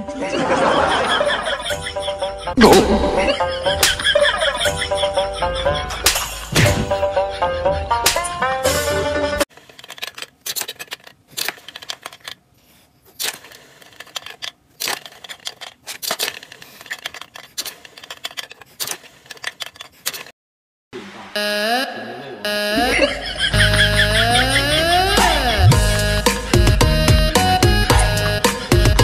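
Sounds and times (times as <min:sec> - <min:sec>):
electronic music: 0:02.6 - 0:03.8, 0:21.4 - 0:29.0.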